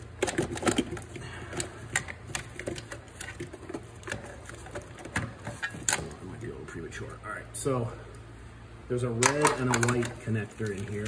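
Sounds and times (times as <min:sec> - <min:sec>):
plastic clicks and knocks: 0:09.2 - 0:10.8.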